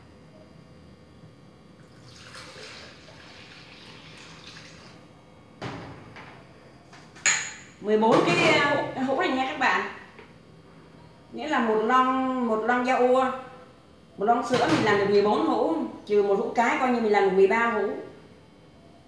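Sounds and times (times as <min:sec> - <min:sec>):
liquid pouring into plastic pitcher: 0:01.8 - 0:05.0.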